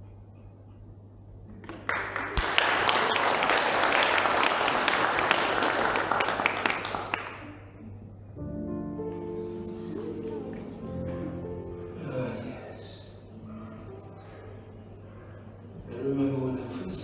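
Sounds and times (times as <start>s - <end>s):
audience applauding: 1.5s - 7.8s
music: 7.4s - 15.9s.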